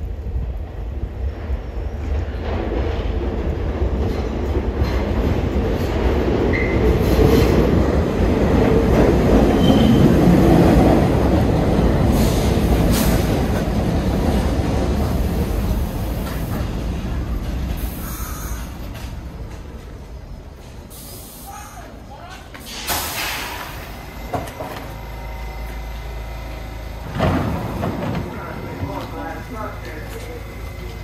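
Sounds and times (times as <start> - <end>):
clanks from wheels and rail joints: 0.0 - 31.0
subway train rumbling: 0.0 - 31.0
wheel squeals: 9.5 - 10.2.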